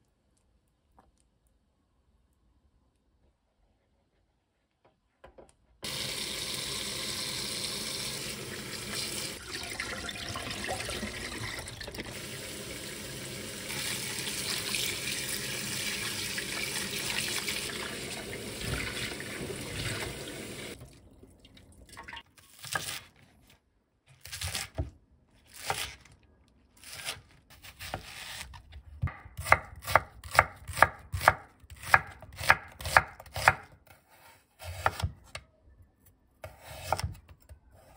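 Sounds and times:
tap water running into sink: 5.8 - 22.2.

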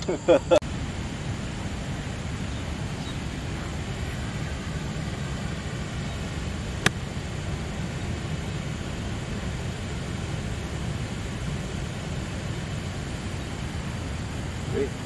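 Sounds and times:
golf club striking ball: 6.8 - 7.0.

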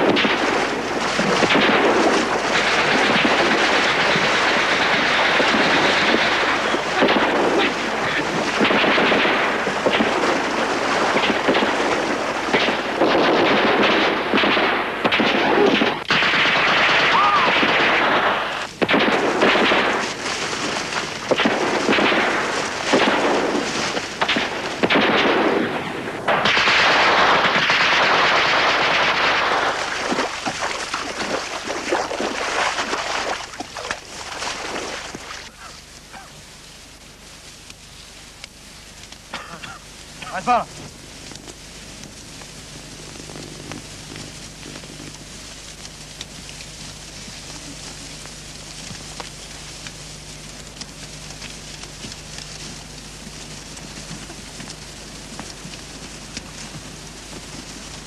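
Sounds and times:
rifle shots: 0.0 - 33.4
machine-gun bursts: 0.0 - 33.6.

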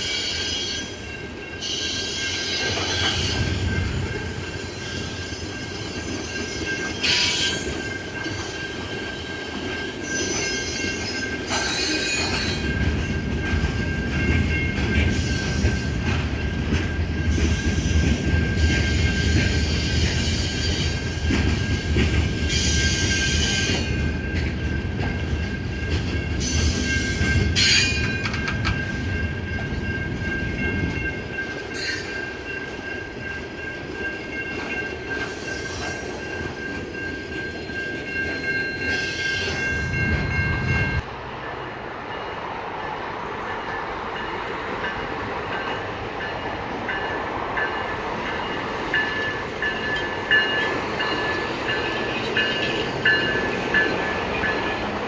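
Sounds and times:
high wheel squeal: 0.0 - 12.8
freight train wheels rumbling: 0.0 - 55.0.

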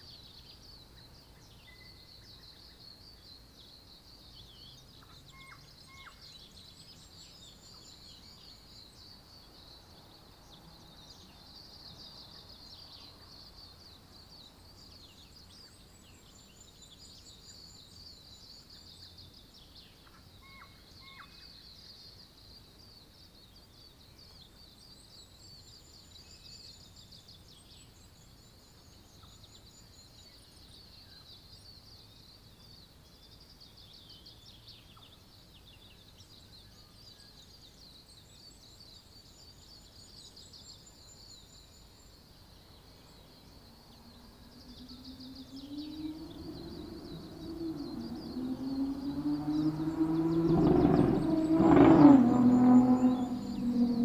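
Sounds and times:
birds calling: 44.2 - 54.0
high-pitched chirring chorus: 44.2 - 54.0
low rumble: 44.7 - 54.0.

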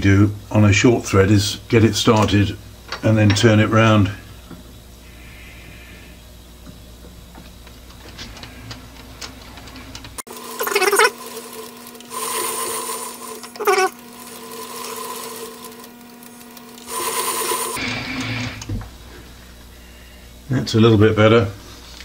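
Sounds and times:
lathe motor hum: 10.3 - 18.8.

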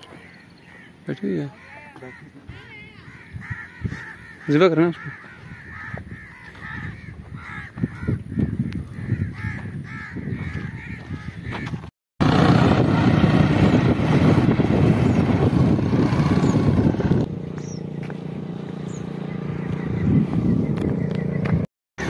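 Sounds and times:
road noise: 0.0 - 7.4, 11.5 - 21.7
motorcycle engine: 12.2 - 21.7.

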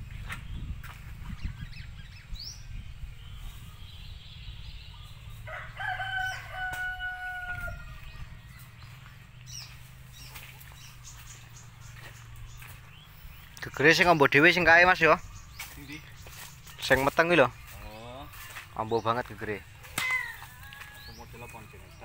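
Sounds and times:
rooster crowing: 5.4 - 8.1.

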